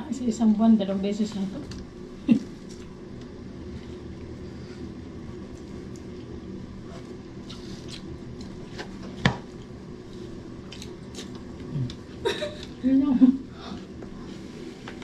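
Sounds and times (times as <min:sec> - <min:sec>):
steady low hum: 0:00.0 - 0:15.0
chewing: 0:07.0 - 0:08.6, 0:10.6 - 0:12.0.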